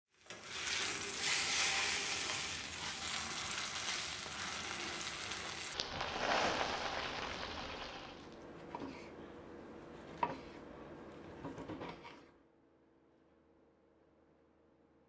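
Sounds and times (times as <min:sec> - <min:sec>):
steak sizzling in a skillet: 0:00.4 - 0:08.3.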